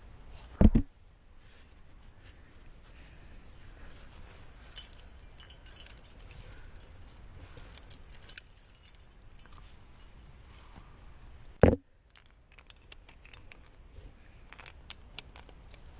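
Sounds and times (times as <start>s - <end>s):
climbing gear clinking and jangling: 4.7s - 10.6s, 12.1s - 13.7s, 14.5s - 15.5s.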